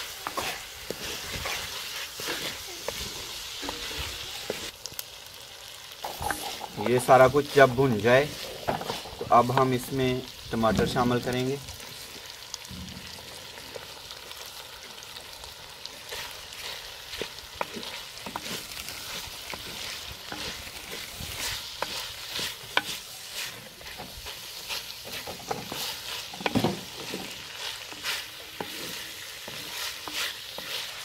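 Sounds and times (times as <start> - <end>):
food sizzling in a pot: 0.0 - 31.0
ladle scraping clay pot: 0.2 - 4.7.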